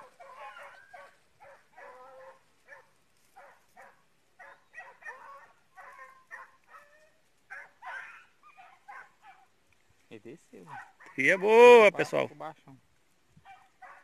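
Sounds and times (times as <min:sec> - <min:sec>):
dogs baying and yelping: 0:00.0 - 0:09.6, 0:10.7 - 0:11.4, 0:13.4 - 0:14.0.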